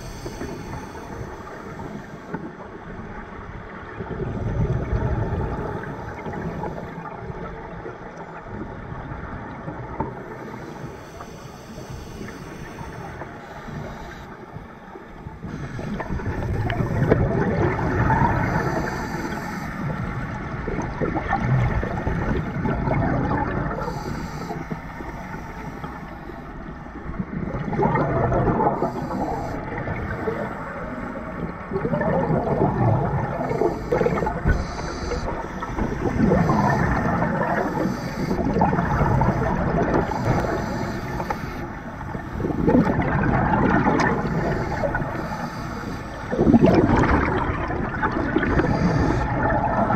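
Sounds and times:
regulator breathing: 0:00.0 - 0:02.4, 0:10.2 - 0:17.3, 0:18.2 - 0:20.1, 0:23.7 - 0:27.0, 0:28.6 - 0:31.3, 0:33.2 - 0:43.0, 0:43.6 - 0:47.3, 0:48.2 - 0:49.9
bubbles gurgling: 0:03.9 - 0:10.3, 0:15.4 - 0:18.9, 0:19.8 - 0:23.9, 0:27.1 - 0:41.2, 0:41.8 - 0:49.9.

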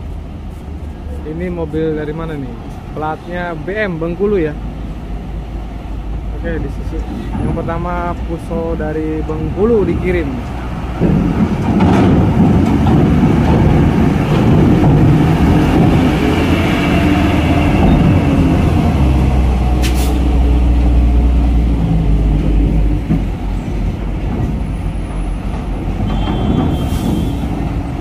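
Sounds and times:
diesel truck engine working hard: 0:03.4 - 0:28.0.

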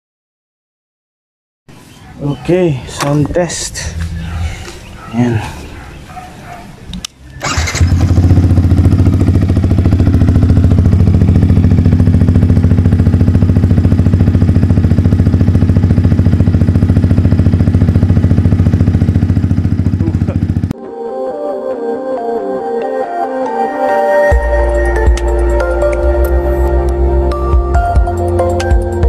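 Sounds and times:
electric starter: 0:07.2 - 0:08.5
motorcycle engine idling: 0:07.2 - 0:20.7.

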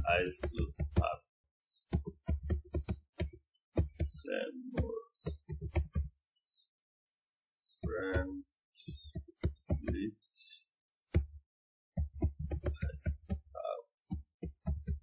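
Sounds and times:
keyboard typing: 0:00.0 - 0:01.1, 0:01.9 - 0:06.2, 0:07.8 - 0:10.1, 0:12.0 - 0:15.0.

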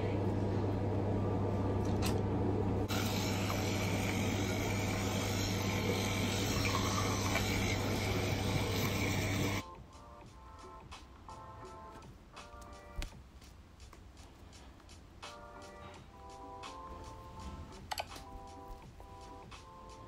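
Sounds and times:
steady low hum: 0:00.0 - 0:09.7
electric toothbrush scrubbing: 0:02.9 - 0:09.6.

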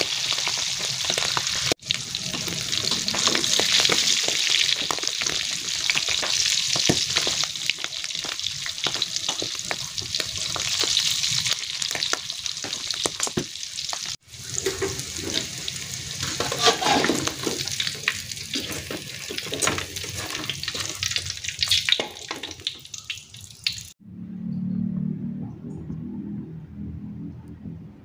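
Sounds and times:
oil sizzling and crackling: 0:00.0 - 0:24.0
metal tongs scraping pan: 0:16.2 - 0:17.7.

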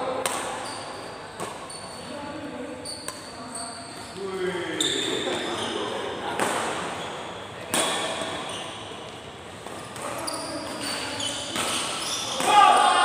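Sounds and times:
rackets hitting shuttlecock: 0:00.2 - 0:00.6, 0:01.3 - 0:01.7, 0:06.3 - 0:07.0, 0:07.6 - 0:08.5, 0:09.6 - 0:12.9.

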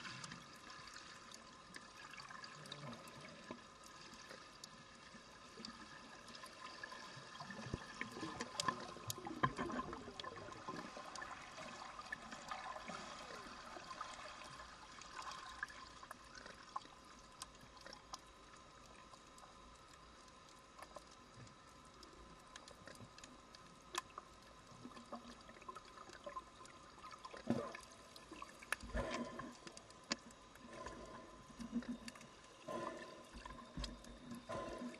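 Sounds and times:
faint steady hum: 0:00.0 - 0:34.9
underwater bubbling and crackling: 0:00.0 - 0:34.9
sharp underwater clicks: 0:22.4 - 0:24.2.

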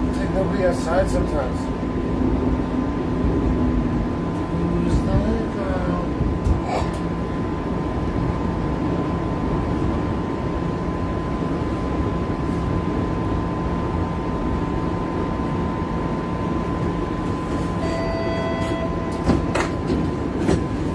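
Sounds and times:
streetcar rumble: 0:00.0 - 0:20.9
constant high tone: 0:17.8 - 0:19.5
short electronic tone: 0:17.8 - 0:19.5.

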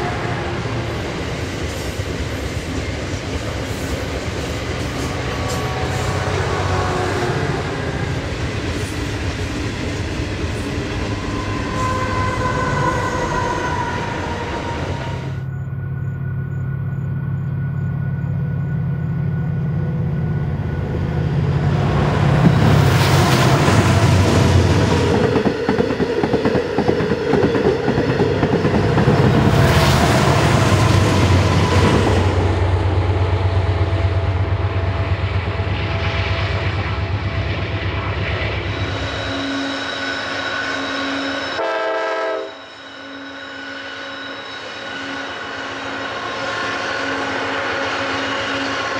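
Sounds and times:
locomotive engine drone: 0:00.0 - 0:48.9
thin squealing tones: 0:10.8 - 0:20.5, 0:38.6 - 0:41.6, 0:42.4 - 0:48.9
train wheels clacking: 0:22.3 - 0:32.5.

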